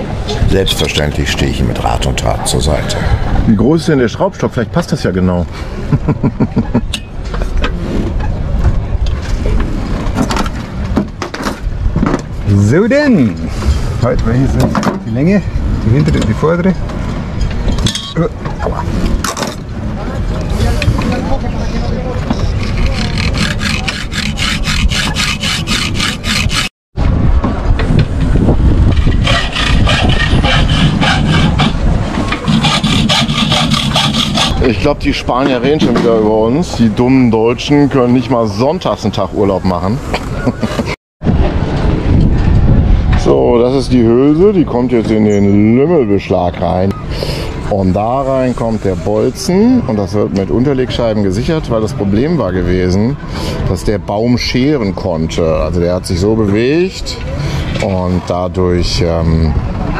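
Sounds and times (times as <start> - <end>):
hacksaw cutting metal: 22.6 - 26.7, 29.0 - 34.6
steady low rumble: 27.0 - 37.0, 40.0 - 45.2.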